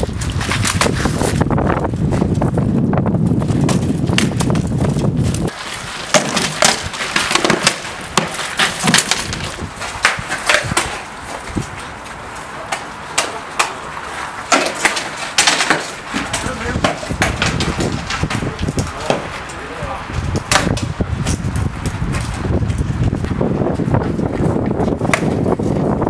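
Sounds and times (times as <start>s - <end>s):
wind rumbling on microphone: 0.0s - 13.1s, 13.8s - 26.0s
rattan weapons striking shields: 6.0s - 11.1s, 12.7s - 19.6s, 20.3s - 21.4s.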